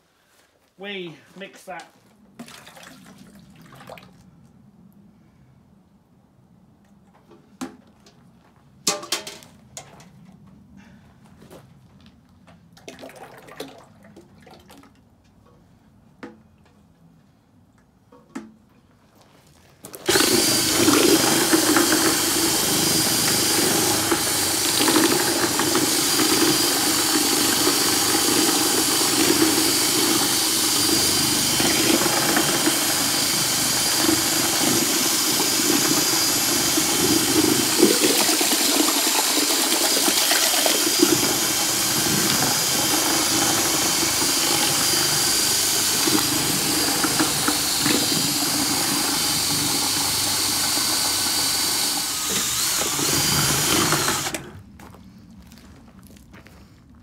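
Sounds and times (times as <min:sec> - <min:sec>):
cordless drill mixing paint: 0:20.0 - 0:54.6.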